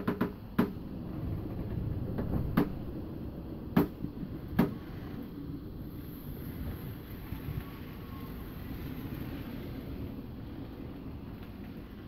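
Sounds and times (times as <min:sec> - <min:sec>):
sharp knocks and clicks: 0:00.0 - 0:00.8, 0:01.4 - 0:02.8, 0:03.8 - 0:04.0, 0:04.6 - 0:04.8
steady low rumble: 0:00.0 - 0:12.0.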